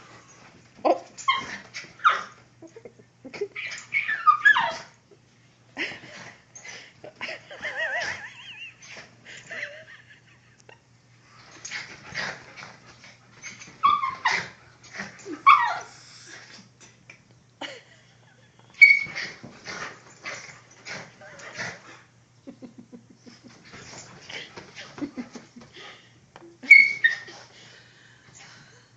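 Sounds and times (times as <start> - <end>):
dogs yipping and barking: 0.3 - 2.4, 3.5 - 5.0, 13.4 - 16.0, 18.8 - 21.6, 26.6 - 27.4
dog whining: 0.9 - 2.8, 3.4 - 5.0, 13.4 - 16.0, 18.8 - 22.0, 26.6 - 27.4.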